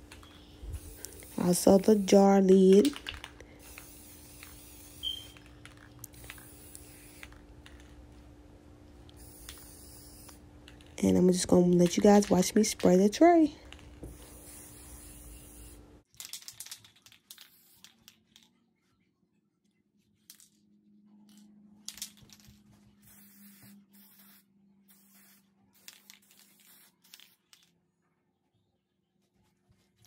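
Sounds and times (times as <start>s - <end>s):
spray can hissing: 0.8s - 7.8s, 9.1s - 10.4s, 14.0s - 15.8s, 17.3s - 17.9s, 23.0s - 27.6s.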